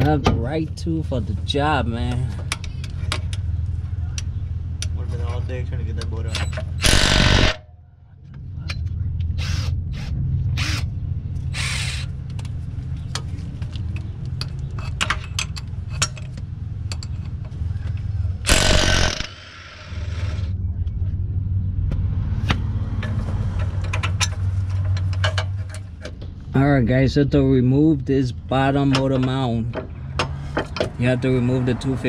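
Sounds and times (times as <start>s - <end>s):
steady low hum: 0.0s - 23.2s
electric ratchet running: 6.8s - 7.6s, 11.6s - 12.1s, 18.5s - 20.5s.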